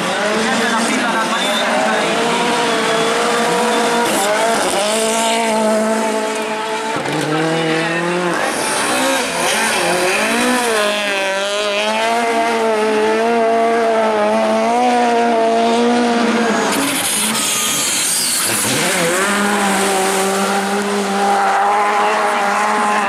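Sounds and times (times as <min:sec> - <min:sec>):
car engine revving: 0:00.0 - 0:23.0.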